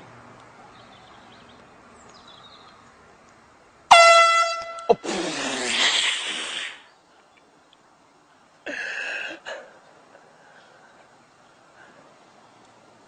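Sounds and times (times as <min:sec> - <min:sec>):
air horn blast: 0:03.9 - 0:05.1.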